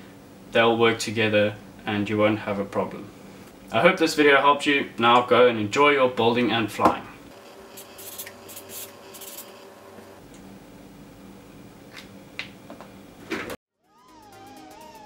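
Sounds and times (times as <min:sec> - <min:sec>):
marker pen scratching on paper: 0:07.4 - 0:09.6.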